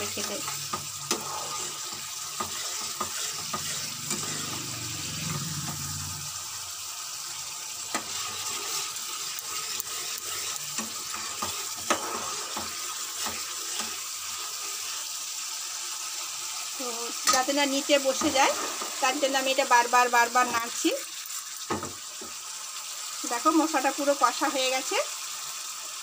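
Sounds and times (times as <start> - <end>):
spatula scraping and clicking pan: 0.0 - 5.9, 7.8 - 15.0, 17.2 - 19.0
paste sizzling in oil: 0.0 - 26.0.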